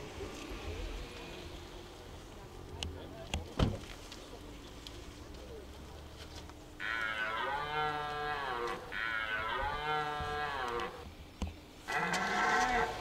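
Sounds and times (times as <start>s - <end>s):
deer stag roaring: 6.8s - 11.0s, 11.9s - 13.0s.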